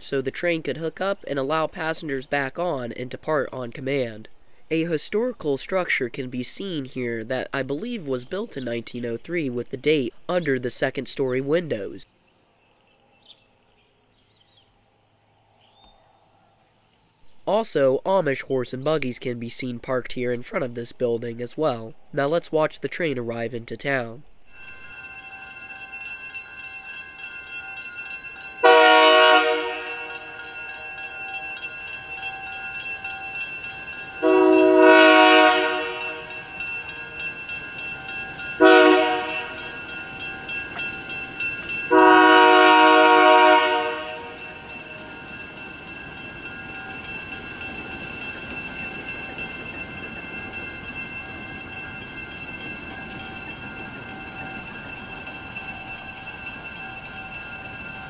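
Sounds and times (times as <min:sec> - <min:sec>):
crossing bell ringing: 0:23.9 - 0:58.0
train rumbling past: 0:24.2 - 0:58.0
locomotive horn blasts: 0:28.6 - 0:30.4, 0:34.2 - 0:36.4, 0:38.6 - 0:39.6, 0:41.9 - 0:44.6.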